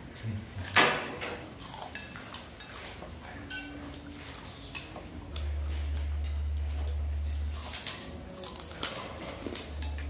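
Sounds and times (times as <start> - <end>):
spoons clinking on plates: 1.8 - 5.1, 9.0 - 10.0.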